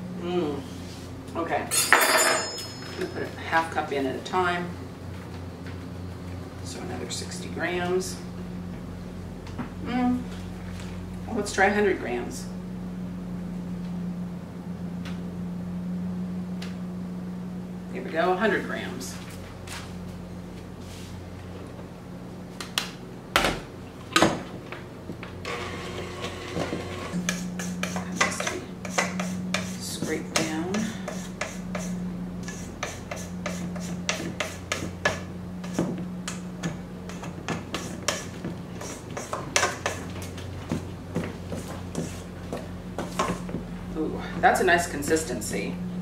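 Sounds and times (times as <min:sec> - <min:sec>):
steady low hum: 0:00.0 - 0:46.0
spatula scraping metal bowl: 0:27.2 - 0:35.8, 0:37.1 - 0:40.1.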